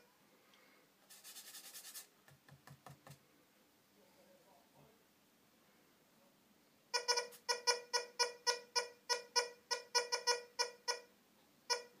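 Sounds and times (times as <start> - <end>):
metal detector beeping: 7.0 - 11.1, 11.7 - 12.0.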